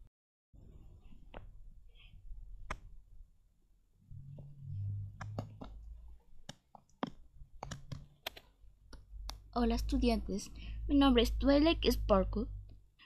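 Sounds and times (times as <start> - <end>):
low hum: 4.0 - 6.0.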